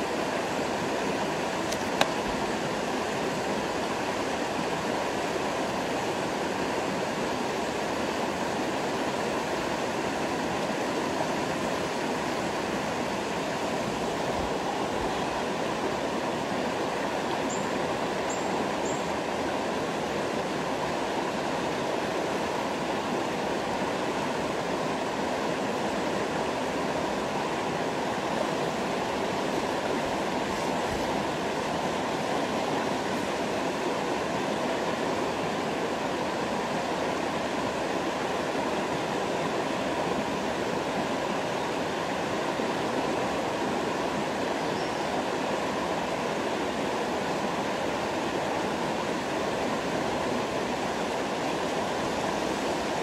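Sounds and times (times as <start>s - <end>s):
river water rushing over rocks: 0.0s - 53.0s.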